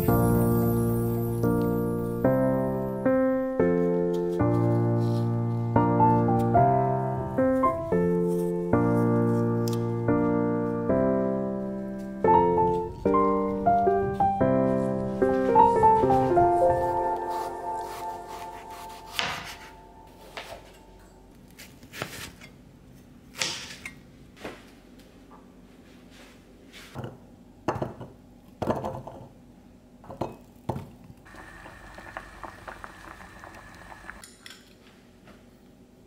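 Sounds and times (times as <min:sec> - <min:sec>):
knife cutting on wooden board: 0:17.3 - 0:19.7.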